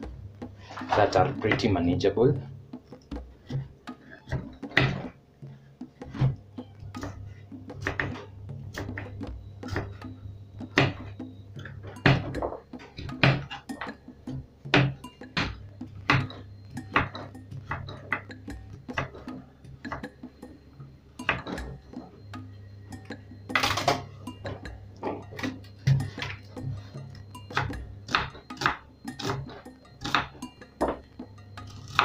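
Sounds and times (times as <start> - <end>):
knife chopping on wooden board: 27.5 - 31.0, 31.7 - 32.0.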